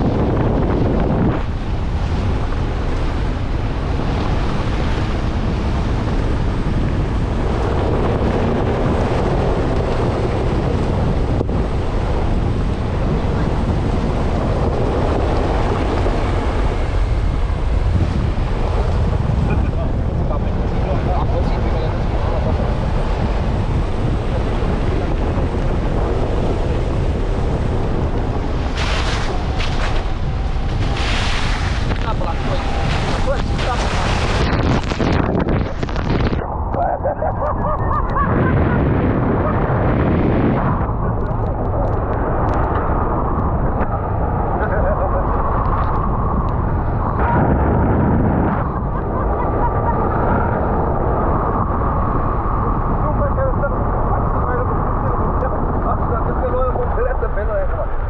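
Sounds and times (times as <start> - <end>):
rushing surge: 0.0 - 37.4
vehicle engine rumble: 0.0 - 58.0
wind: 0.0 - 58.0.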